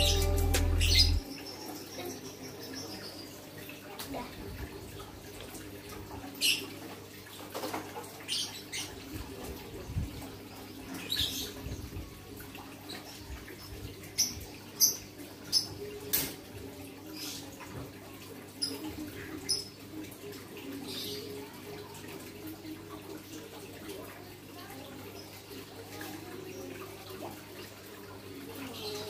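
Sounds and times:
low hum: 0.0 - 1.2
bird chirping: 0.0 - 1.6.

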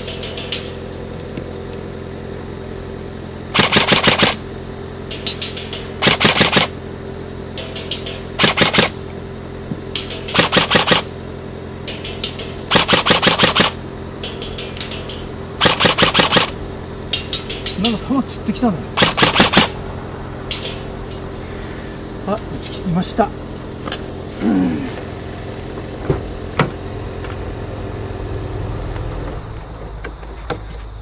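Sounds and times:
automatic gunfire bursts: 3.5 - 4.4, 5.4 - 6.8, 7.8 - 9.0, 10.0 - 11.1, 12.0 - 16.6, 19.0 - 19.8
faint distant gunfire bursts: 3.5 - 4.4, 5.2 - 6.8, 7.7 - 9.0, 12.0 - 16.6, 19.0 - 19.8.

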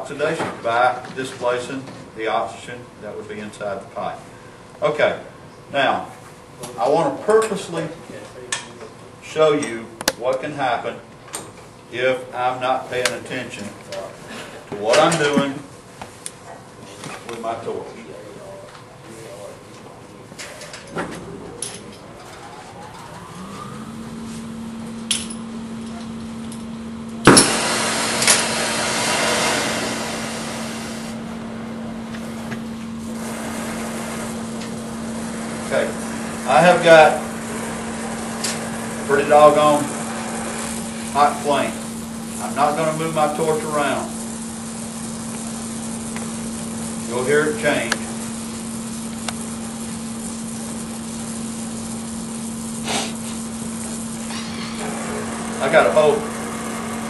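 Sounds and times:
torch flame hissing: 27.2 - 57.0.

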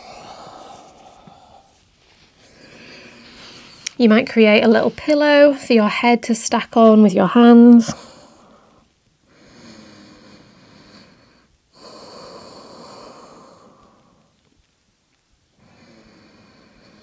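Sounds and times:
woman breathing slowly: 0.0 - 4.0, 8.0 - 14.5, 15.6 - 17.0.

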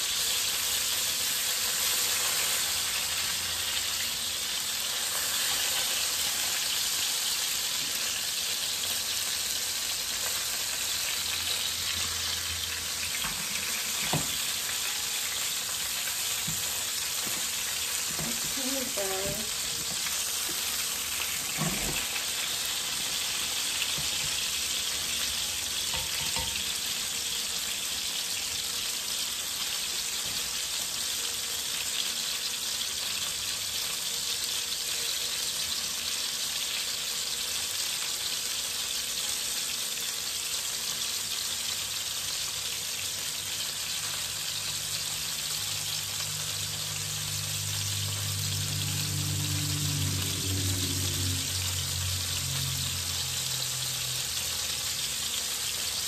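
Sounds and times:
fish sizzling in oil: 0.0 - 56.0
low hum: 46.7 - 53.8.

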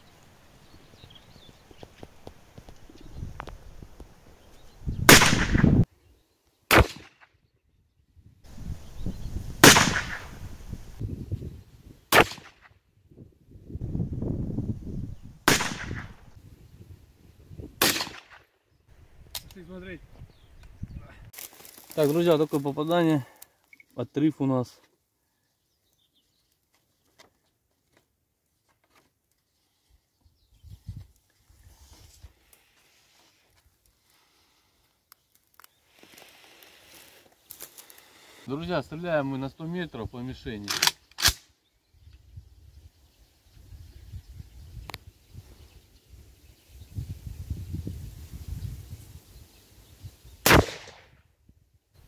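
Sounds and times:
rifle shots: 5.1 - 5.8, 6.7 - 7.2, 9.6 - 10.4, 12.1 - 12.6, 15.5 - 16.2, 17.8 - 18.4, 50.4 - 51.1.

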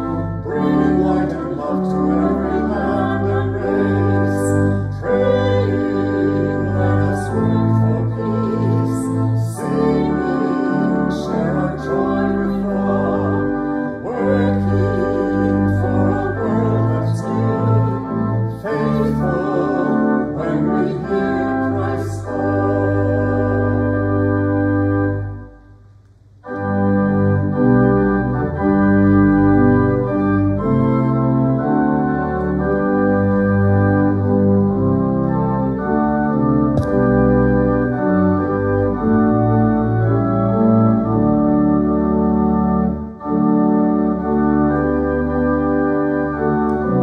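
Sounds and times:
organ playing sustained chords: 0.0 - 47.0
people singing: 0.5 - 24.2.

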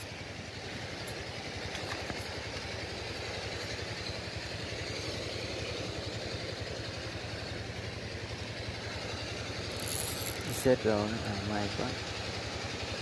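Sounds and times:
small engine idling: 0.0 - 13.0.

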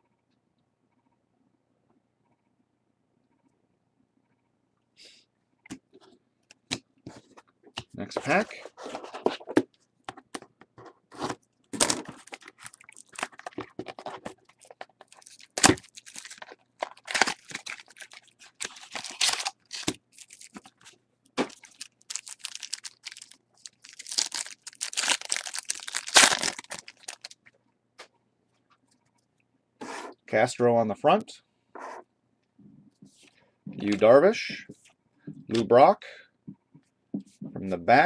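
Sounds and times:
card pack wrapper tearing: 11.7 - 27.4.

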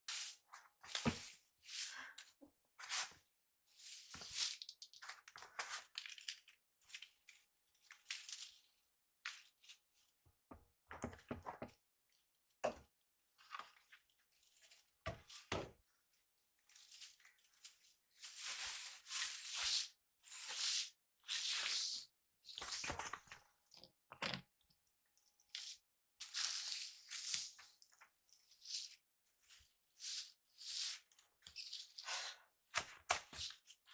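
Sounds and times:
straw broom sweeping floor: 0.1 - 5.0, 16.6 - 23.0, 25.6 - 27.8, 28.4 - 33.9.

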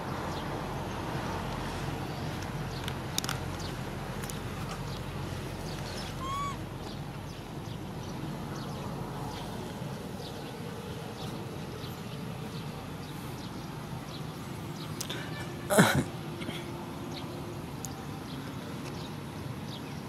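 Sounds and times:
outdoor background noise: 0.0 - 20.0
baby monkey cooing: 5.9 - 6.6.

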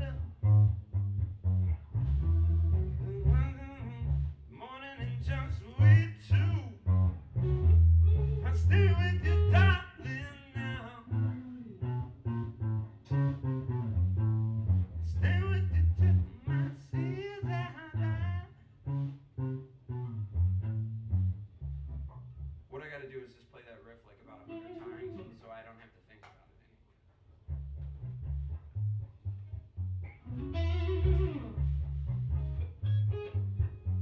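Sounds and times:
bass guitar line: 0.0 - 22.7, 24.5 - 25.4, 27.4 - 34.0
electric guitar lead: 7.0 - 14.8, 24.4 - 25.4, 30.0 - 34.0.

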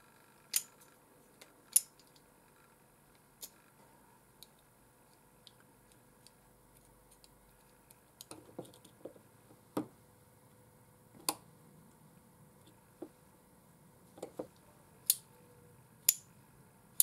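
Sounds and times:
small metal parts clicking: 0.5 - 1.0, 1.7 - 2.2.

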